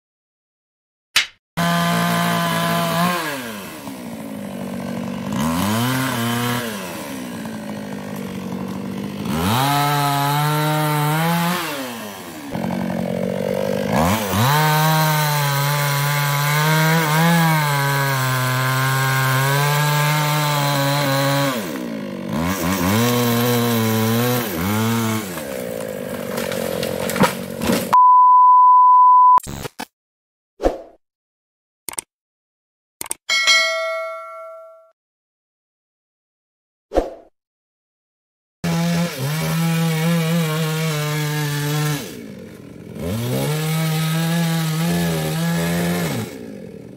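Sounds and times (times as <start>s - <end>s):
chainsaw cutting logs: 1.6s - 28.0s, 38.6s - 46.9s
high beep: 28.0s - 29.4s.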